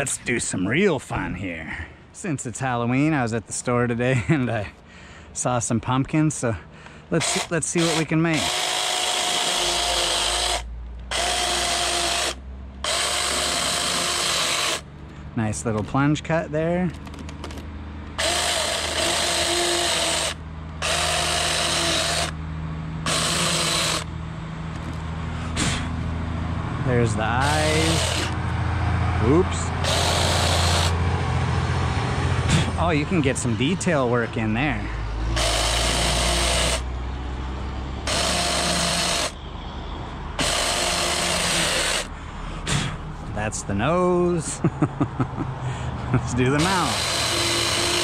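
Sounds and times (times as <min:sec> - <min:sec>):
electric chainsaw whining: 0:07.2 - 0:14.9, 0:17.1 - 0:22.4, 0:23.0 - 0:24.1, 0:26.8 - 0:28.5, 0:29.2 - 0:32.3, 0:35.3 - 0:36.9, 0:38.0 - 0:39.4, 0:40.4 - 0:42.1, 0:46.4 - 0:48.0.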